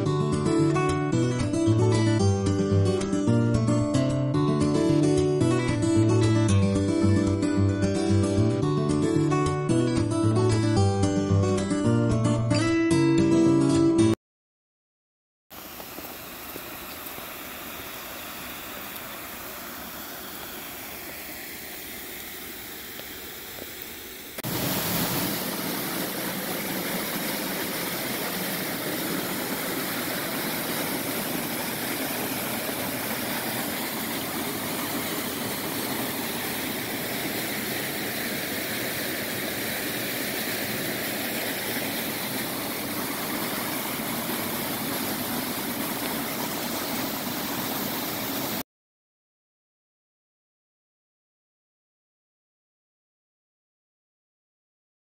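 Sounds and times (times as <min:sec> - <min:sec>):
close waterfall rushing: 0:15.5 - 0:48.6
mountain stream rushing: 0:15.5 - 0:48.6.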